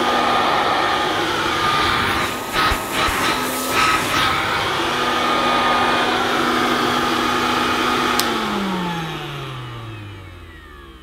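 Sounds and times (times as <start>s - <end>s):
hand-held vacuum cleaner running: 0.0s - 11.0s
switch click: 8.2s - 8.4s.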